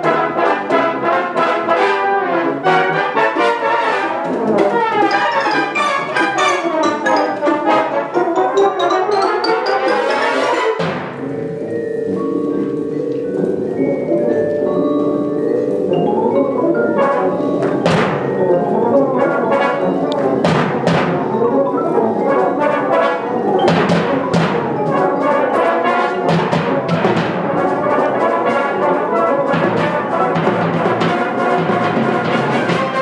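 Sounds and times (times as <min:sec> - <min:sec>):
brass band playing: 0:00.0 - 0:14.2, 0:15.8 - 0:33.0
sharp percussion hits: 0:05.0 - 0:11.6, 0:17.6 - 0:18.6, 0:20.3 - 0:21.6, 0:23.6 - 0:28.6.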